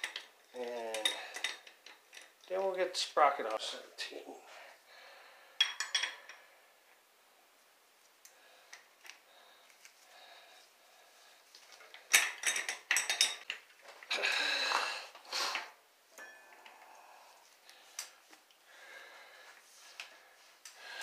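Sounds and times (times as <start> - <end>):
wrench clinking on metal: 12.0 - 13.6.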